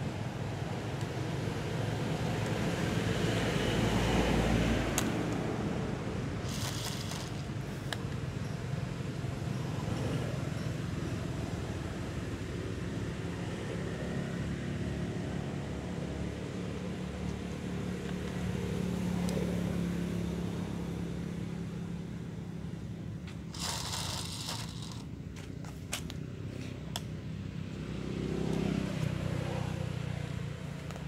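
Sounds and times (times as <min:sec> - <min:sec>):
vehicle engine hum: 0:00.0 - 0:31.0
rustling noise: 0:06.4 - 0:07.5, 0:23.3 - 0:26.7.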